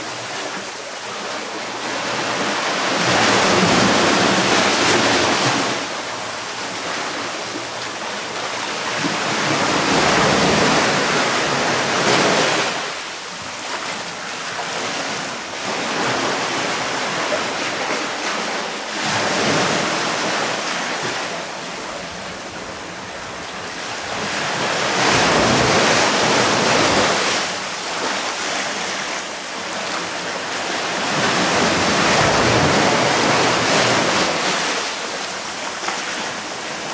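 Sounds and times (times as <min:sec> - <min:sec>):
waves washing onto sand and rock: 0:00.0 - 0:36.9.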